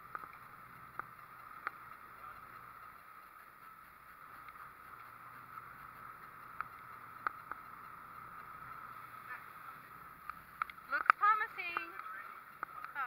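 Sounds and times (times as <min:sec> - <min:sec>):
boat motor humming and whining: 0:00.0 - 0:13.0
sharp clicks: 0:10.2 - 0:13.0.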